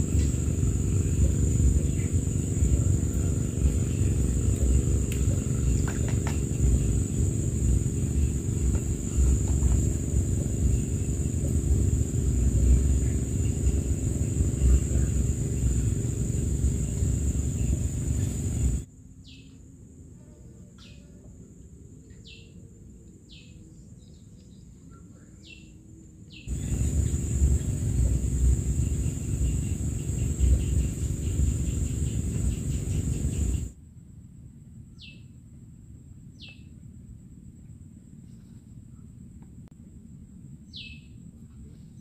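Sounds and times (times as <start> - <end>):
high-pitched insect drone: 0.0 - 19.5, 26.3 - 33.8
low outdoor rumble: 0.0 - 42.0
bird chirps: 40.7 - 41.2.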